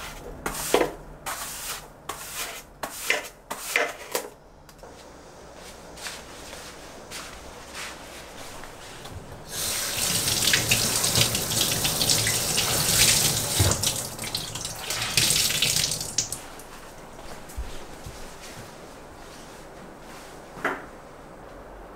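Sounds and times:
kitchen tap turning on and off: 9.5s - 16.4s
water running over hands: 9.5s - 16.5s
cloth rinsed and squeezed in sink: 9.5s - 16.6s.

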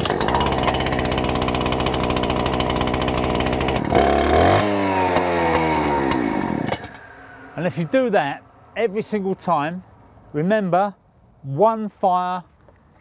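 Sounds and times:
two-stroke engine idling: 0.0s - 7.9s.

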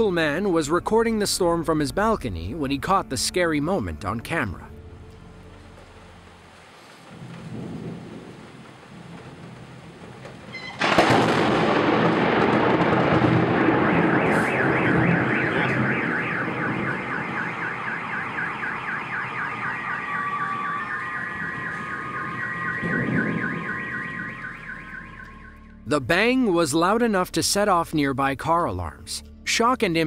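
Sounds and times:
rumble of thunder: 7.1s - 18.8s, 19.4s - 25.2s
lightning strike bang: 7.2s - 25.3s
car alarm wailing siren: 10.5s - 26.0s
car alarm steady tones: 12.7s - 26.0s.

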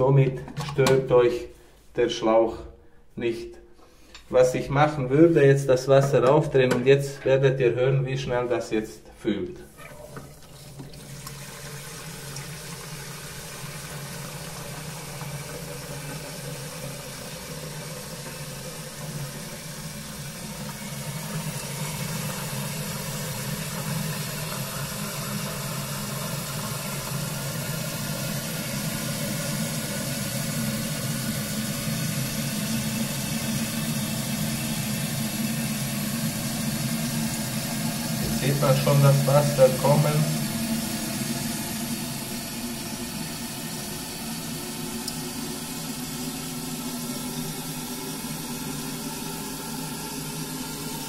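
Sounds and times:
water running into cistern: 9.6s - 51.0s.

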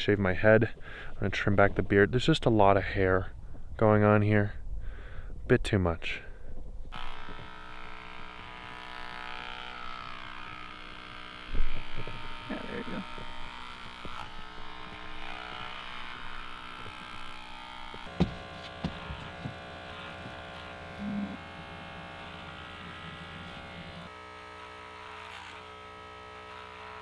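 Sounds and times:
electric hair clippers buzzing: 6.9s - 27.0s.

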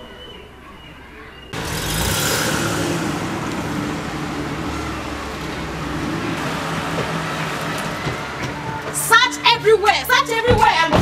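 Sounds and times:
loud road noise: 1.5s - 11.0s
car engine running: 1.6s - 9.9s.

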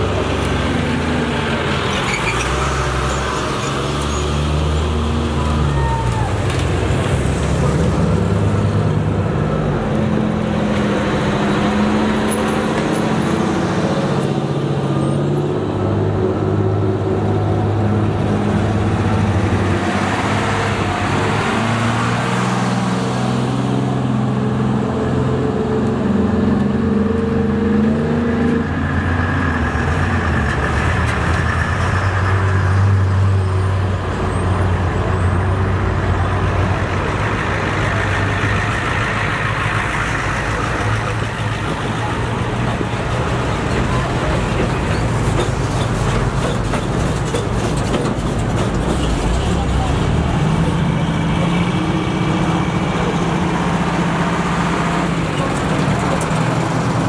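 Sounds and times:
vehicle engines driving past: 0.0s - 57.0s.

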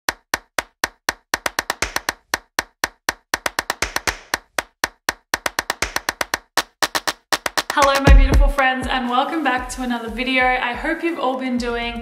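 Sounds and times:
sharp clap-like percussion hits: 0.1s - 8.7s.

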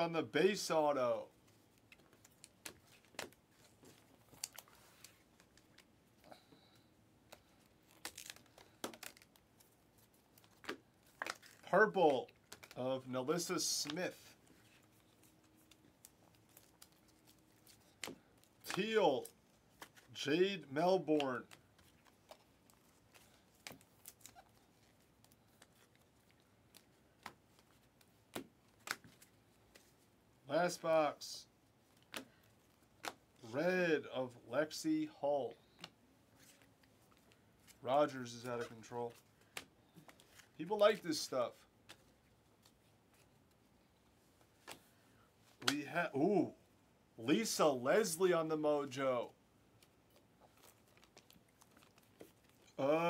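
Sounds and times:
trading cards flipping and sliding: 1.4s - 6.0s, 13.4s - 30.1s, 35.6s - 43.7s.

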